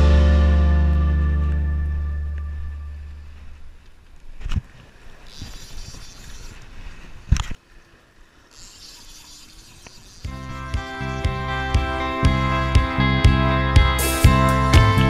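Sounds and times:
background music: 0.0s - 3.0s, 10.6s - 15.0s
water at shoreline: 0.0s - 15.0s
wind: 0.0s - 15.0s
sharp low thumps: 10.3s - 15.0s.

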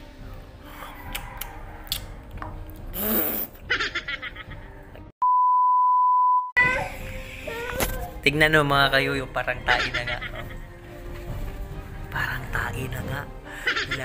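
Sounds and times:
censor bleep: 5.2s - 6.6s.

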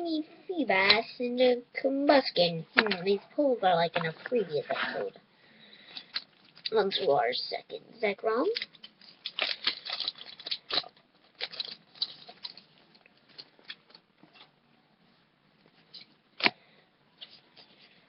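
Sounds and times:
foil wrapper crinkling and tearing: 8.5s - 14.0s.

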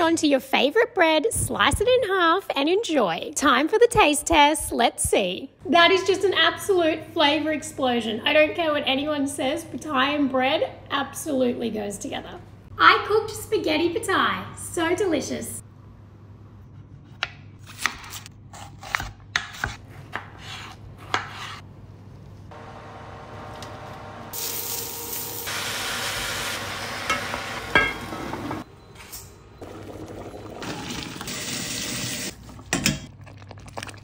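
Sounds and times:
onion sizzling in a pot: 22.8s - 28.6s.

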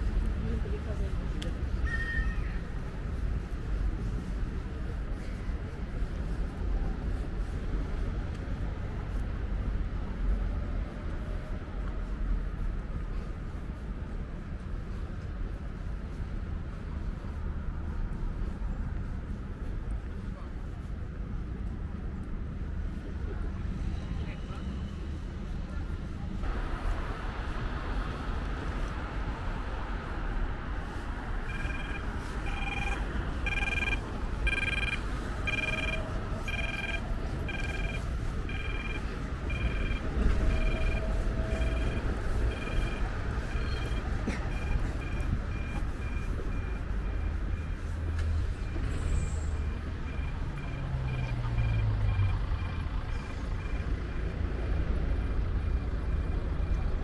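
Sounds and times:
city traffic rumble: 0.0s - 57.0s
crossing signal beeping: 30.8s - 57.0s.

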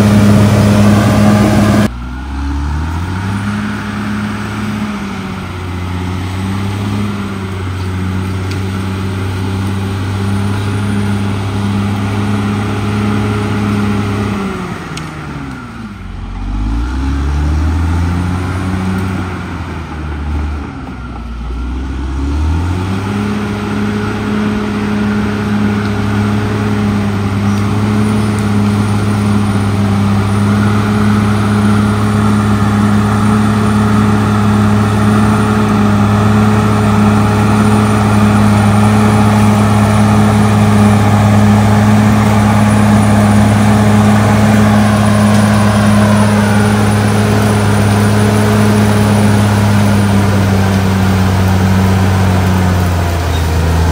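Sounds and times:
blade pushing soil: 0.0s - 53.9s
bulldozer diesel engine revving: 0.0s - 53.9s.

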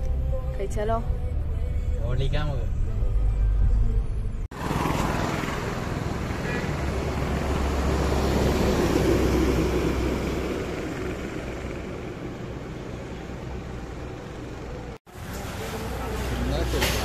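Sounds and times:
road traffic rush: 1.9s - 17.0s
large truck passing: 3.5s - 17.0s.

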